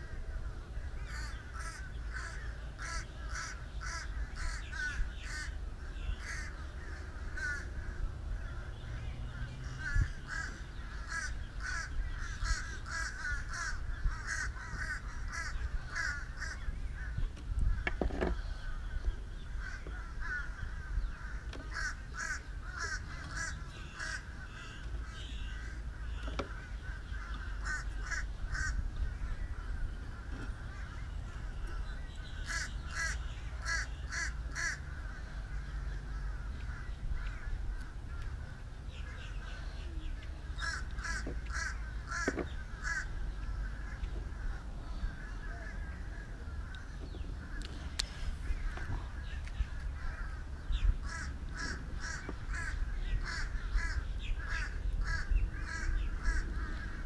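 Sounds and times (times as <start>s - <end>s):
steady low rumble: 0.0s - 57.0s
crows cawing: 1.0s - 8.8s, 9.4s - 39.6s, 40.5s - 57.0s.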